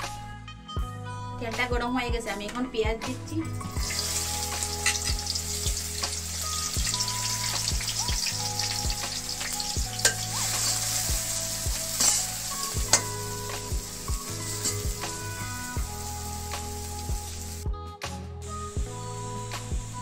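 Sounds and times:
onions sizzling in hot oil: 3.7 - 17.6, 18.5 - 20.0.

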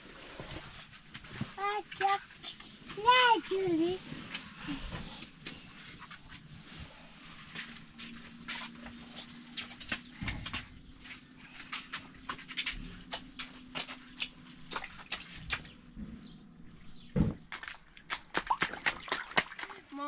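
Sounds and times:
water dripping on plastic sheet: 9.5 - 15.9, 17.4 - 20.0.

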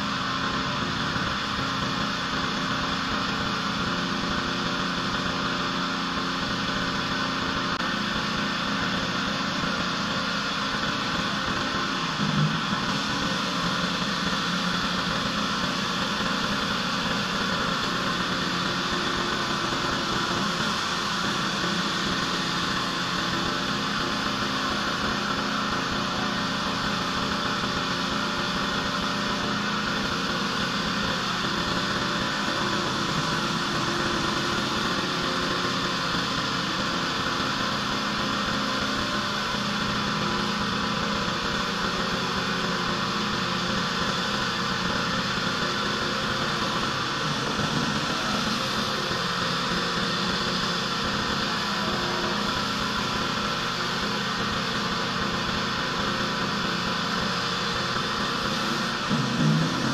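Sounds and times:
pressure washer running: 0.0 - 59.9.

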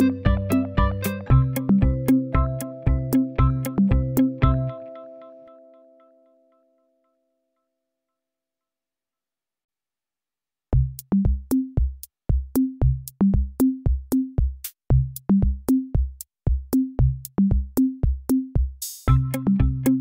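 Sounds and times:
drum machine beat with bass: 0.0 - 4.8, 10.7 - 20.0.

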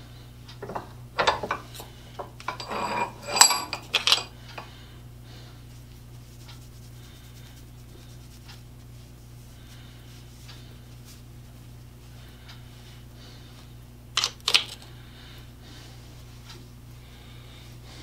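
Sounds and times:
steady low hum: 0.0 - 18.0
metal parts clinking: 2.5 - 4.3.

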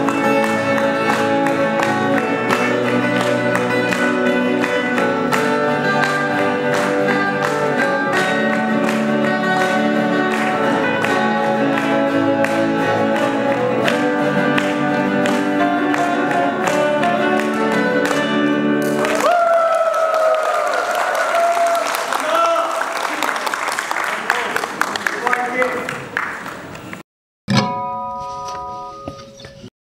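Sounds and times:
acoustic guitars playing: 0.0 - 19.3, 27.5 - 29.7.

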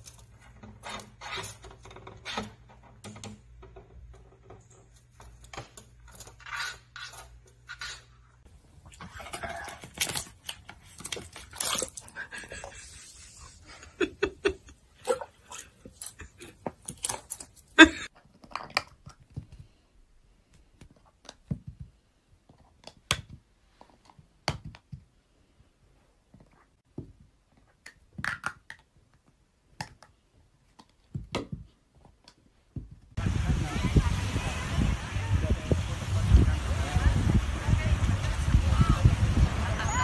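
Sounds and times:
plastic cups clicking and knocking: 27.7 - 32.4.

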